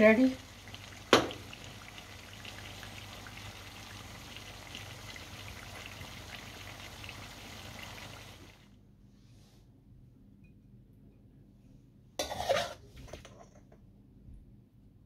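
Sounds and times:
curry sizzling and bubbling in pan: 0.0s - 8.7s.

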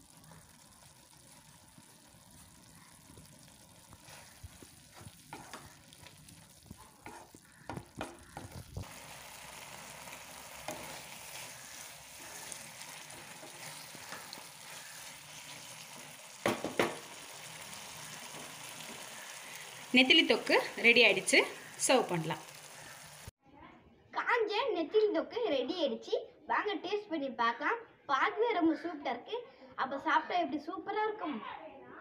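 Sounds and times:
food sizzling in a frying pan: 0.0s - 23.4s
spatula scraping a pan: 2.4s - 19.9s
spatula knocks: 7.0s - 8.6s, 16.4s - 17.1s.

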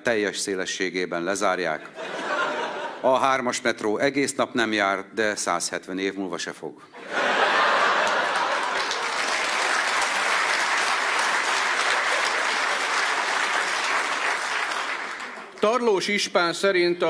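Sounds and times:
audience applauding: 7.4s - 15.8s.

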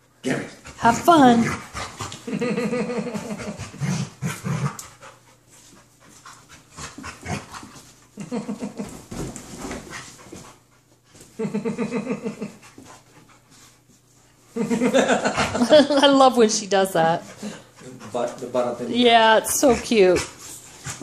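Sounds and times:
dogs panting hard: 0.4s - 2.3s, 3.1s - 8.8s, 12.3s - 16.1s, 17.0s - 21.0s.

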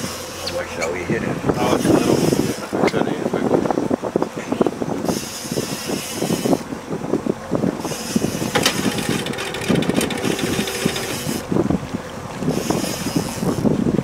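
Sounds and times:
water noise: 0.0s - 14.0s
wind: 0.0s - 14.0s
fishing reel clicking and whirring: 7.9s - 11.4s.

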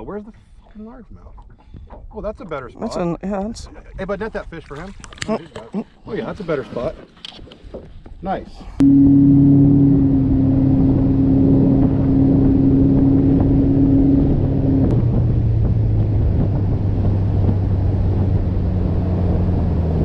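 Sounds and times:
boat motor running: 8.8s - 20.0s.

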